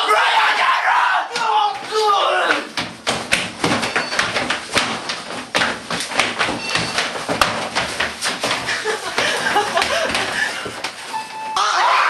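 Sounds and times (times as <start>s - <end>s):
people shouting: 0.0s - 2.7s, 11.6s - 12.0s
bodies thudding against elevator walls: 2.7s - 11.1s.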